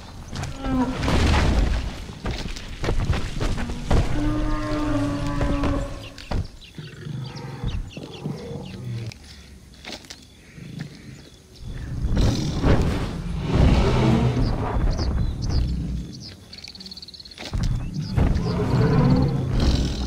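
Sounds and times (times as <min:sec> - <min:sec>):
deep animal growl: 0:11.7 - 0:16.2, 0:17.9 - 0:20.0.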